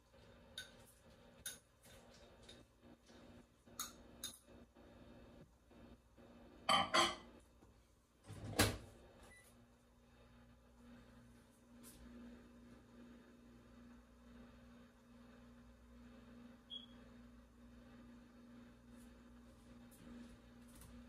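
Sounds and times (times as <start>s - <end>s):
dishes and utensils clinking: 6.7s - 7.3s.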